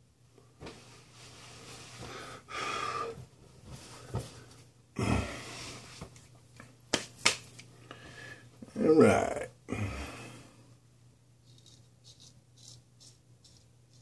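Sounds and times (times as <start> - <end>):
breathing: 2.0 - 6.0, 7.8 - 8.6, 9.7 - 10.8.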